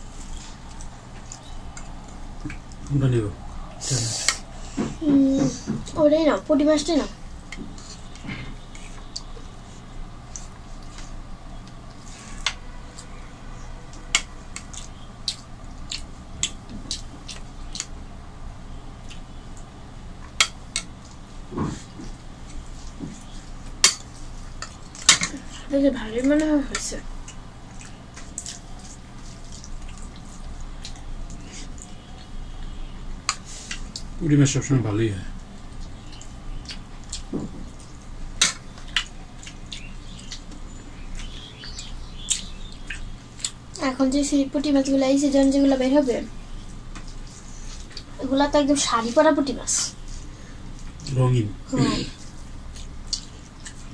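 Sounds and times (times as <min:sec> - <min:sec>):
soft chewing: 0:00.0 - 0:03.0, 0:07.4 - 0:34.2, 0:35.3 - 0:43.8, 0:46.3 - 0:48.2, 0:51.8 - 0:53.9.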